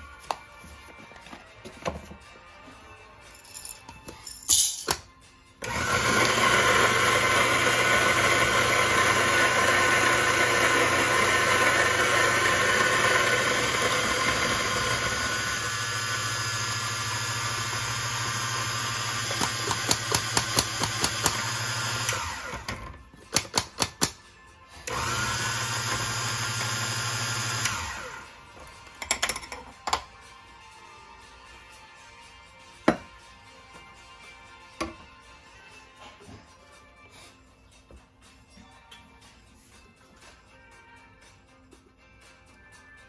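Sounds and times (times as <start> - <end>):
electric coffee grinder grinding: 5.6 - 23.0, 24.9 - 28.4.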